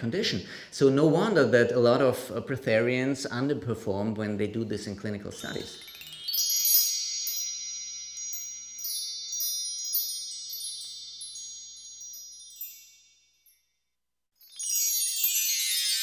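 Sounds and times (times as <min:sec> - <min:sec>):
chimes ringing: 0:05.3 - 0:16.0.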